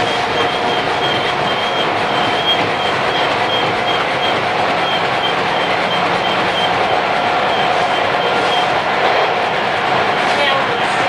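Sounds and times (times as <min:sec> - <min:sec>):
train whine: 0:00.0 - 0:11.0
wheels rumbling on rail: 0:00.0 - 0:11.0.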